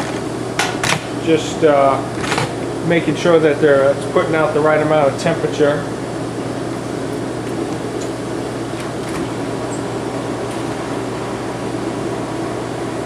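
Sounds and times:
kitchen equipment mechanical hum: 0:00.0 - 0:13.0.

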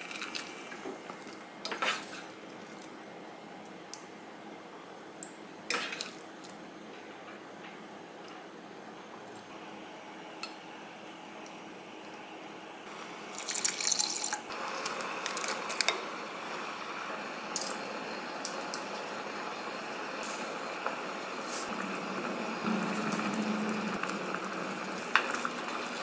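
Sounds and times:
pot simmering: 0:12.9 - 0:26.0
water pouring into saucepan: 0:13.3 - 0:15.8, 0:21.4 - 0:26.0.

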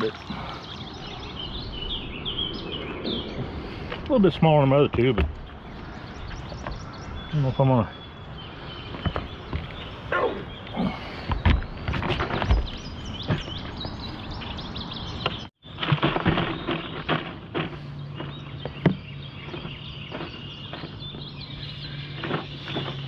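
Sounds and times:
short grunting sounds: 0:10.1 - 0:11.3.

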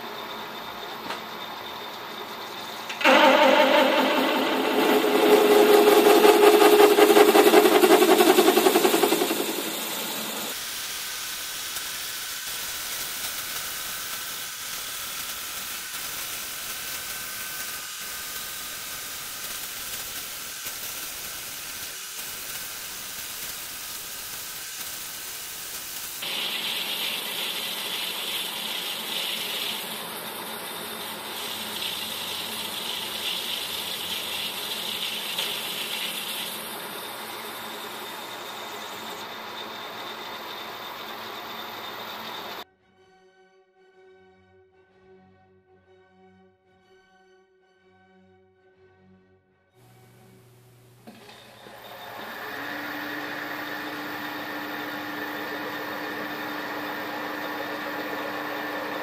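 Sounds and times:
metal lathe spinning: 0:02.9 - 0:10.6, 0:26.2 - 0:42.6, 0:51.1 - 0:59.0.

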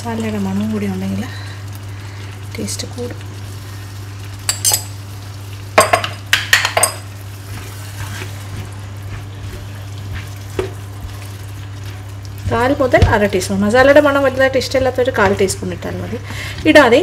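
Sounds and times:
food sizzling: 0:00.0 - 0:17.0
steady low hum: 0:00.0 - 0:17.0
metal spoon clinking on pan: 0:04.5 - 0:04.9, 0:05.8 - 0:07.1
wooden spatula scraping and stirring: 0:07.2 - 0:16.9.

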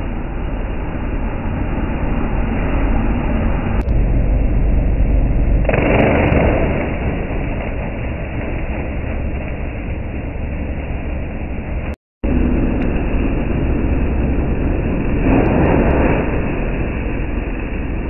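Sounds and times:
shredder machine running: 0:00.2 - 0:18.0.

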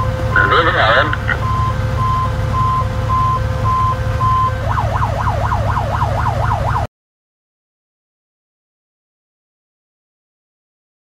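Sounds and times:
engine droning: 0:00.0 - 0:06.9
fire engine siren: 0:00.0 - 0:06.9.

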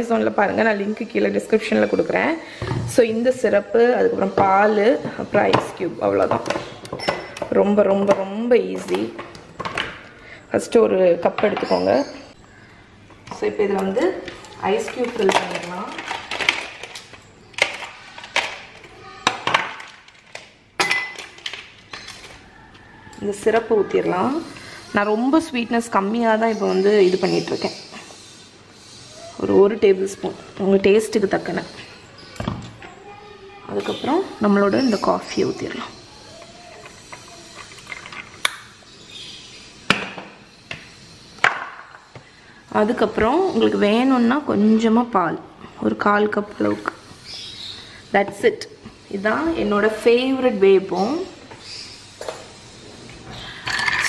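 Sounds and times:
ice cubes clinking into glass mug: 0:53.6 - 0:54.0.

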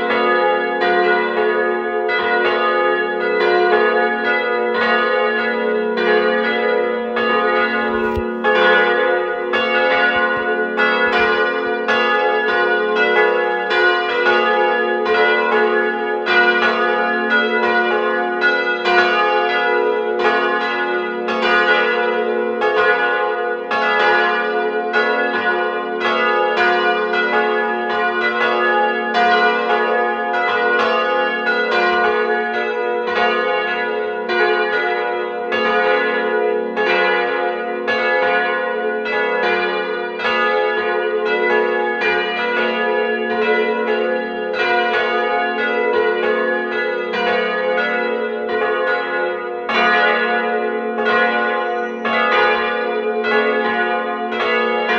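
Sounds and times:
church bells pealing: 0:00.0 - 0:54.9.

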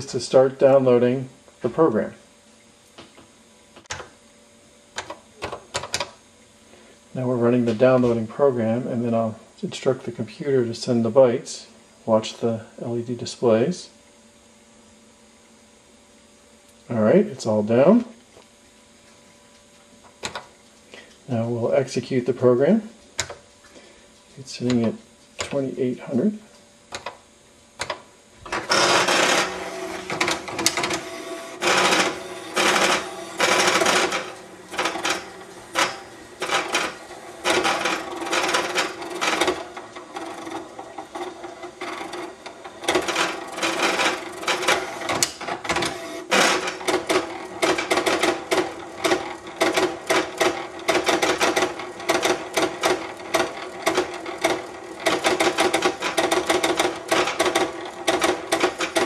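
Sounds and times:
pen plotter motor whine: 0:28.4 - 0:59.0
pen plotter rapid clicking: 0:28.7 - 0:59.0.

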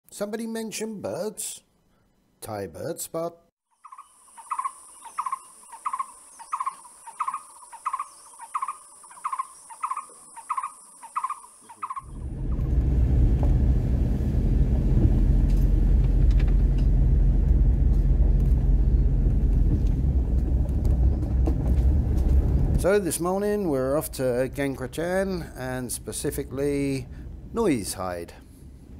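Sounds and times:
car driving on dirt track: 0:12.2 - 0:22.9.

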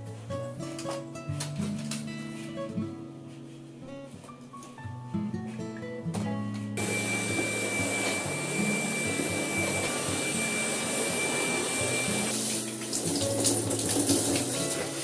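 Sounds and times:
vacuum cleaner whine: 0:06.8 - 0:12.7
tap water running into bathtub: 0:12.2 - 0:15.0.

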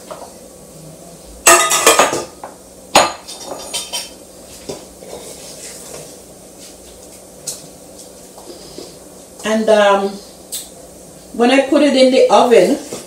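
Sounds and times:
metal bakeware clattering: 0:01.5 - 0:02.3, 0:03.0 - 0:04.2.

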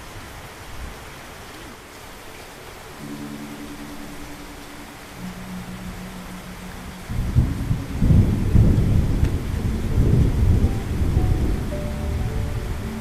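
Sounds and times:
rain falling: 0:00.0 - 0:13.0
thunder rumbling: 0:03.0 - 0:13.0.

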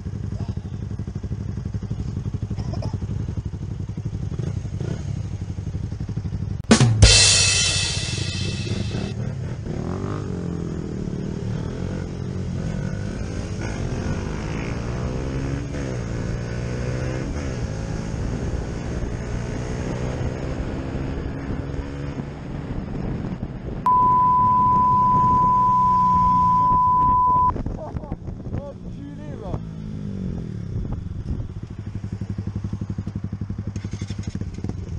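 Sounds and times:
motorcycle engine revving: 0:00.0 - 0:23.1, 0:28.7 - 0:34.9
loud steady beep: 0:08.2 - 0:09.1, 0:23.9 - 0:27.5.

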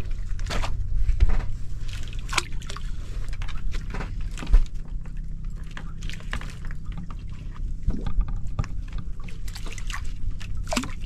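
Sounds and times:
boat engine running: 0:00.0 - 0:11.0
water splashing and dripping: 0:01.8 - 0:11.0.

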